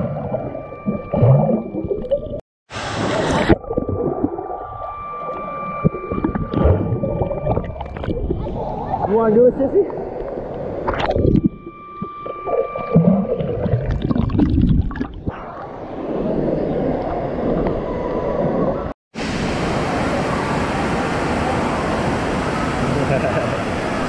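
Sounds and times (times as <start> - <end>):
underwater bubbles: 0.0 - 9.2, 9.8 - 18.9
muffled gurgling water: 0.0 - 18.9
echoing splashing and rushing water: 2.7 - 11.1, 15.2 - 24.0.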